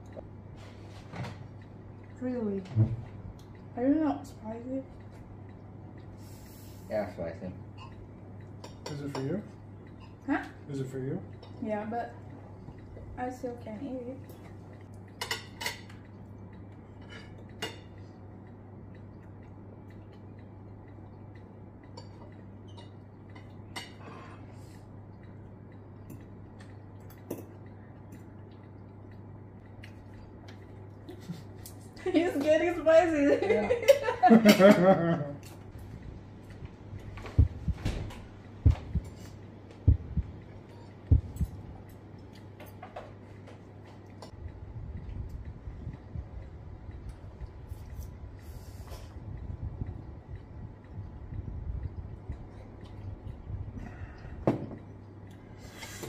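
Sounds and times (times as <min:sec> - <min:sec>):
steady low hum: 0:00.0 - 0:56.0
cutlery clinking against bowl: 0:08.6 - 0:10.2, 0:15.1 - 0:16.1
heartbeat thuds: 0:35.7 - 0:41.8.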